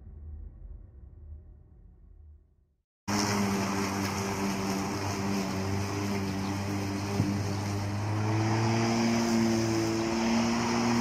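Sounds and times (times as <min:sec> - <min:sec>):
electric lawn mower running: 0:03.1 - 0:11.0.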